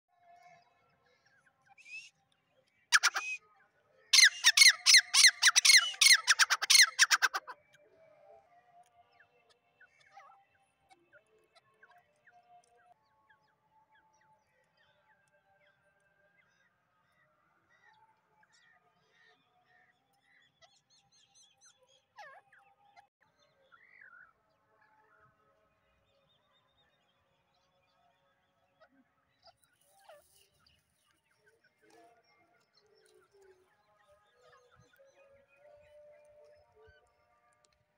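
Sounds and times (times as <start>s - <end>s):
francolin calling: 3.0s - 3.4s, 4.2s - 7.5s.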